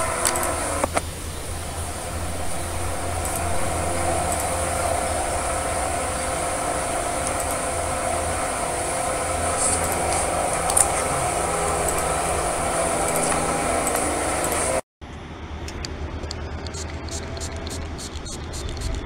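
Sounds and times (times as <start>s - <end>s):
mechanical hum with held tones: 0.0s - 19.0s
small clicks: 0.2s - 1.1s, 15.7s - 19.0s.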